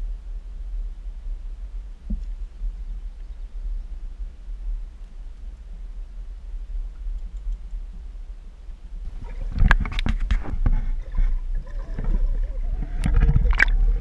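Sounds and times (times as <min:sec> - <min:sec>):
low rumble: 0:00.0 - 0:14.0
water splashing and gurgling: 0:09.1 - 0:14.0.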